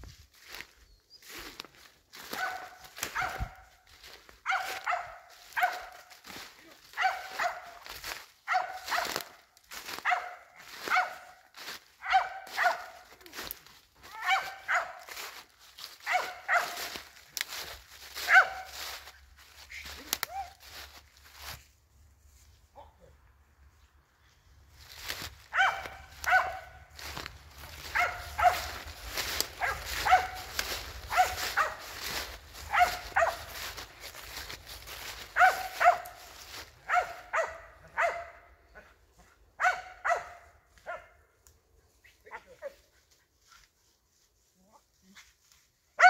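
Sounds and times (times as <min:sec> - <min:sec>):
dog barking sharply: 0:02.3 - 0:03.6, 0:04.4 - 0:06.0, 0:07.0 - 0:07.8, 0:08.5 - 0:09.2, 0:10.0 - 0:11.4, 0:12.0 - 0:13.0, 0:14.2 - 0:15.0, 0:16.0 - 0:16.9, 0:18.3 - 0:18.7, 0:25.5 - 0:26.8, 0:27.8 - 0:28.8, 0:29.5 - 0:31.8, 0:32.7 - 0:33.5, 0:35.3 - 0:36.2, 0:36.8 - 0:38.5, 0:39.6 - 0:41.2.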